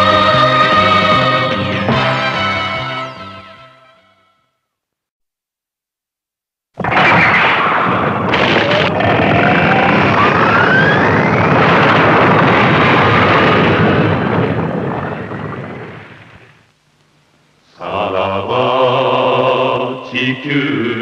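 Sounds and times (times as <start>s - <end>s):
long rumbling explosion: 6.8s - 16.6s
rising whine: 8.3s - 16.7s.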